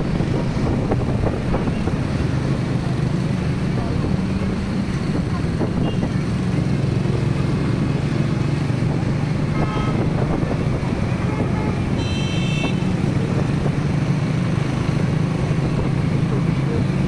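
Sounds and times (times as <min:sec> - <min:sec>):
road noise: 0:00.0 - 0:17.0
vehicle engine drone: 0:00.0 - 0:17.0
car horn toot: 0:09.5 - 0:10.2, 0:11.2 - 0:13.0.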